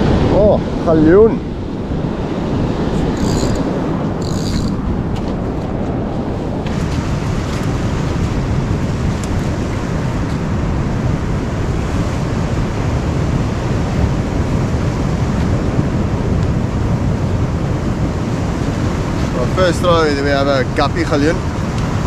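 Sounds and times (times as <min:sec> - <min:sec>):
wind buffeting microphone: 0:00.0 - 0:22.0
surf washing onto rocky beach: 0:04.8 - 0:17.0.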